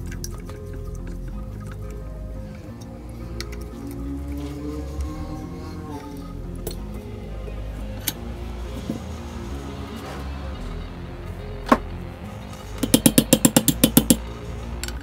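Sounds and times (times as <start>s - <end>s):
background music with low drone: 0.0s - 15.0s
sharp knocks: 12.8s - 14.2s.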